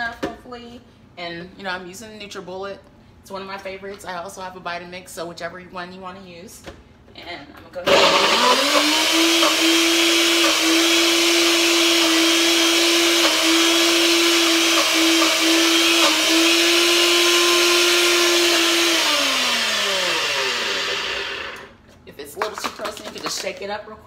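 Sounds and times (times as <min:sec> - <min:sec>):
blender motor running: 0:07.9 - 0:21.8.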